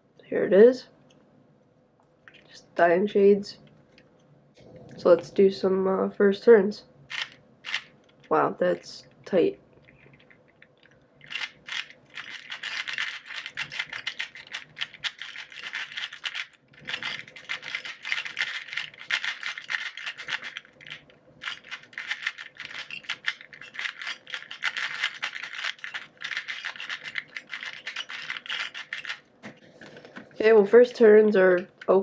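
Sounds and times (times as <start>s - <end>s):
plastic puzzle cube clicking: 7.1s - 8.2s, 9.9s - 29.2s.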